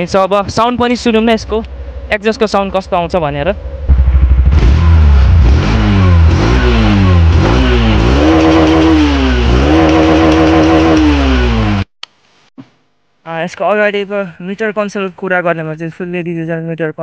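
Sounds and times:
motorcycle engine revving: 1.6s - 11.9s.

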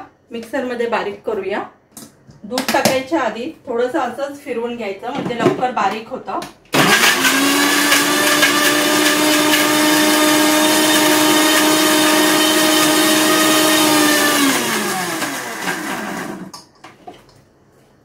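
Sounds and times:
mixer grinder running: 6.8s - 16.6s.

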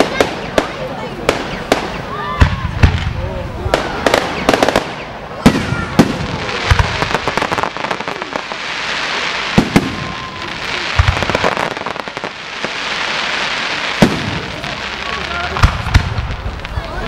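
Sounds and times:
crackling hiss of fireworks: 0.0s - 17.0s
fireworks bangs: 0.0s - 17.0s.

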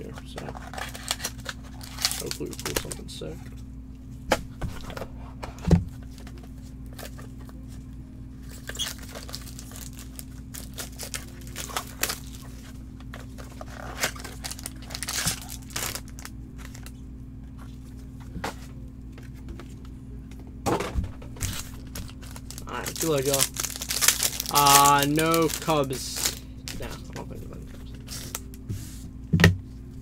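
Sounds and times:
packaging rustling and crinkling: 0.2s - 3.2s, 8.4s - 17.0s, 21.4s - 28.6s.

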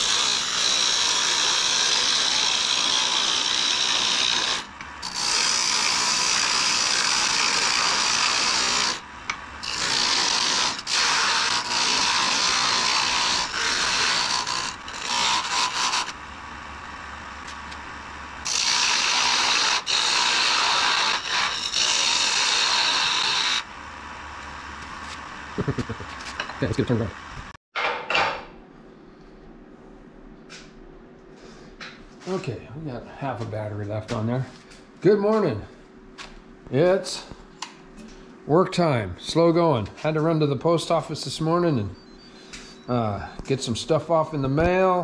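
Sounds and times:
lathe tool cutting wood: 0.0s - 26.0s
lathe low hum: 0.0s - 27.5s.

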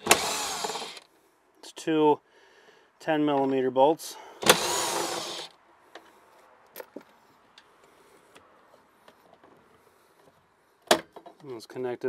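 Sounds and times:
power tool burst: 0.0s - 1.0s, 4.4s - 5.5s.

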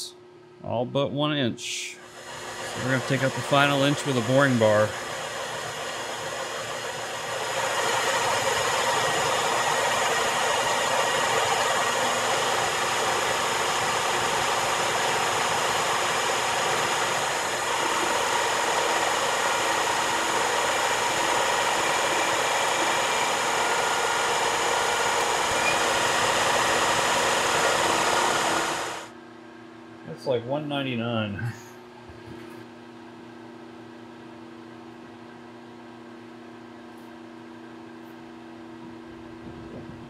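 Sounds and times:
lathe whine tones: 2.0s - 29.1s
metal lathe cutting hiss: 2.0s - 29.1s.

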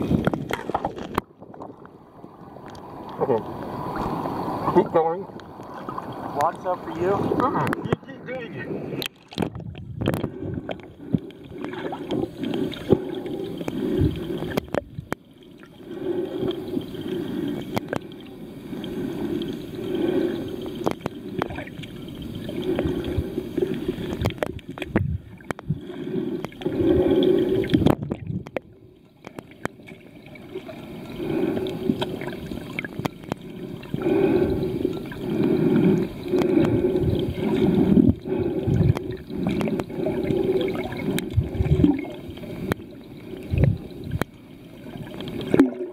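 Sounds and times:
muffled underwater sloshing and bubbling: 0.0s - 45.9s
faint clicks: 2.6s - 4.3s, 9.0s - 15.7s, 16.4s - 19.7s, 20.3s - 26.7s, 27.6s - 30.0s, 31.0s - 34.0s, 35.0s - 40.0s, 40.6s - 44.4s.

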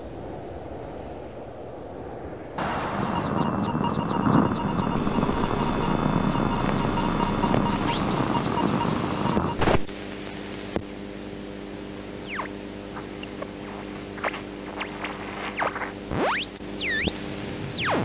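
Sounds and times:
rumbling noise with rising sweeps: 0.0s - 9.3s
electronic chirps and blips: 2.6s - 10.8s, 12.2s - 13.6s, 14.2s - 18.0s
synth drone: 2.6s - 10.8s.

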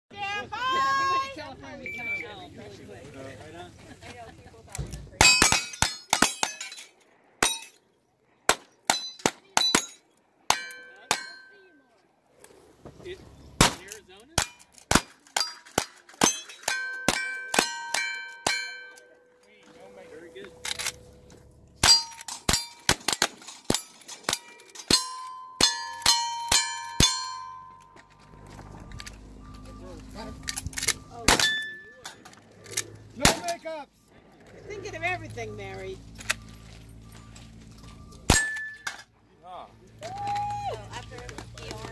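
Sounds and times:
bullets clanging on steel targets: 5.2s - 7.8s, 8.5s - 11.8s, 13.6s - 28.2s, 29.0s - 33.6s, 36.1s - 39.2s.

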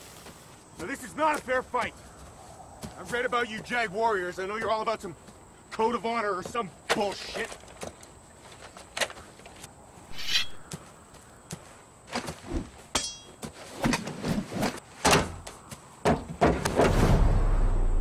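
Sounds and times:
knocks and thuds of staff: 12.2s - 17.0s
metallic clink ringing: 13.0s - 13.4s
low rumble: 16.9s - 18.0s.

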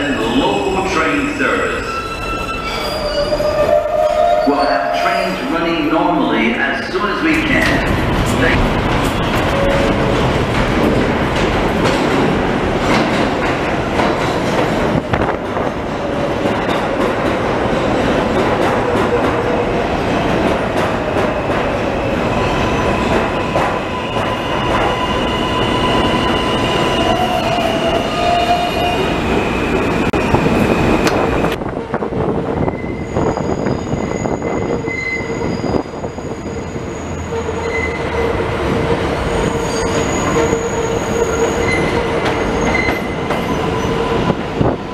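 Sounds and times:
distant train approaching: 0.0s - 44.9s
train wheels rumbling on rail: 0.0s - 44.9s
train wheels squealing: 1.2s - 5.6s, 32.6s - 38.3s, 39.3s - 44.1s.

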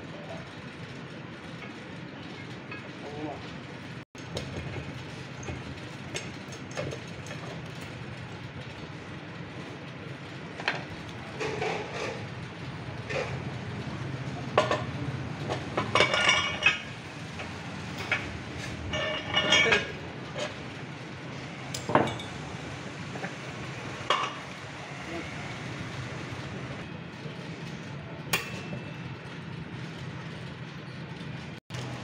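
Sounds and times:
metal parts clinking and clanking: 14.5s - 20.6s.

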